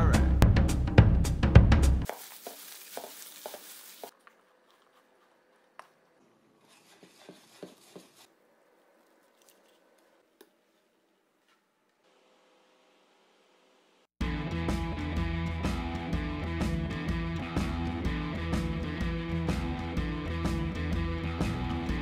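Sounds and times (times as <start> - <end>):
drum-led music: 0.0 - 2.1, 14.2 - 22.0.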